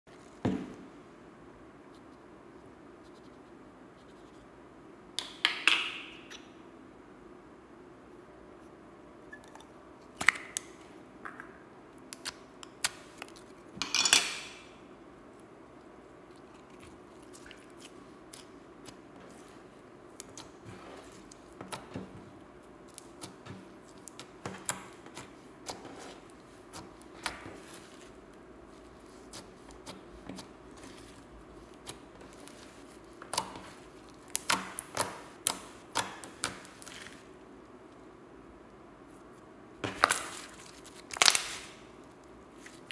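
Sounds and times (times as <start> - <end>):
hands squishing slime: 15.8 - 37.4, 39.3 - 42.9.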